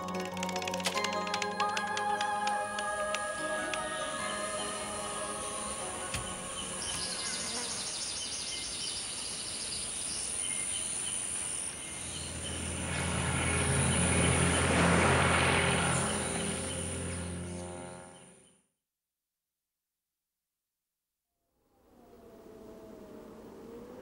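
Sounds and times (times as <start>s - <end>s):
low drone: 0.0s - 8.4s, 11.0s - 18.4s
high insect chirping: 3.8s - 14.7s
rushing swell: 11.5s - 18.2s.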